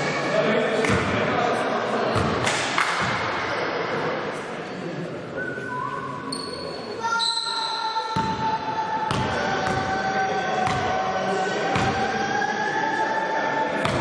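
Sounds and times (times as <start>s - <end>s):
indistinct voices: 6.8s - 14.0s.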